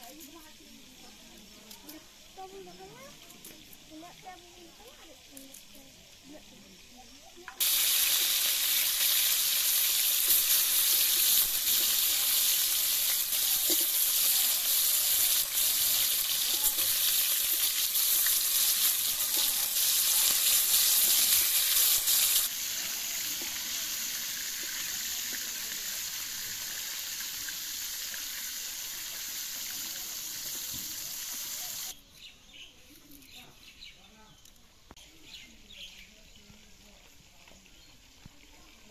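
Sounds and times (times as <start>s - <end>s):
fish sizzling in hot oil: 0.0s - 32.0s
spatula turning fish: 7.6s - 22.6s.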